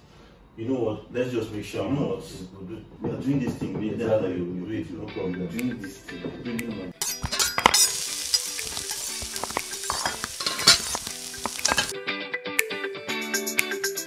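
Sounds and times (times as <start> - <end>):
music: 3.7 - 14.0
food sizzling in hot oil: 7.0 - 11.9.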